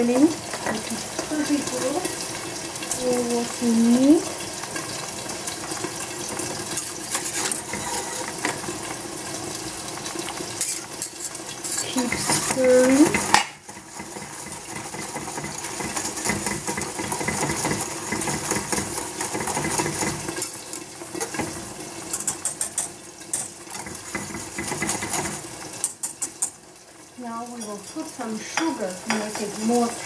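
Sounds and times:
whisk scraping metal pot: 0:05.8 - 0:09.0, 0:10.4 - 0:26.6.

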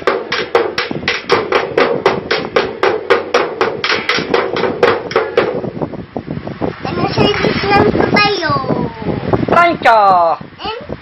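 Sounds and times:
toy drum beaten rapidly: 0:00.0 - 0:05.6.

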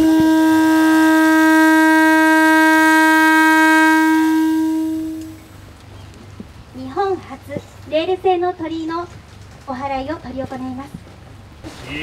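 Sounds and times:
train horn: 0:00.0 - 0:05.5.

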